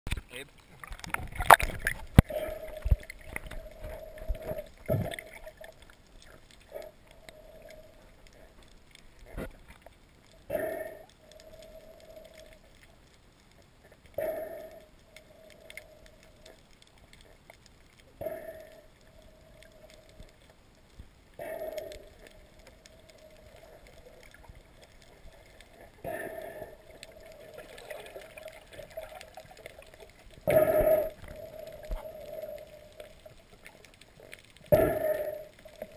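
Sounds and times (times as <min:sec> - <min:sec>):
faint steady hum: 0:00.2 - 0:35.9
water gurgling underwater: 0:00.8 - 0:12.6, 0:21.4 - 0:35.9.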